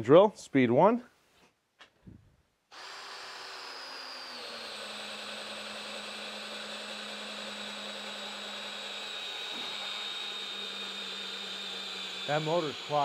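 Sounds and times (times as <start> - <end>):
cordless drill boring into log: 2.7 - 13.0.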